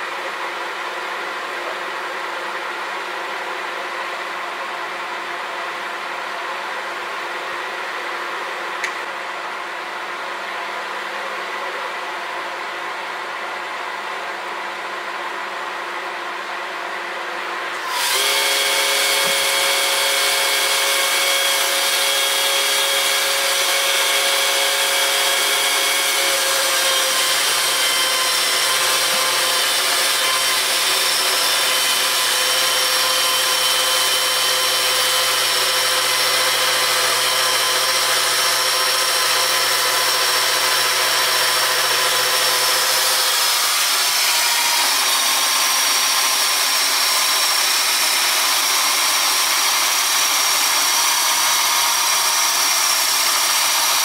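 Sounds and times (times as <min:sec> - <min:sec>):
electric chainsaw cutting log: 0:17.7 - 0:54.0.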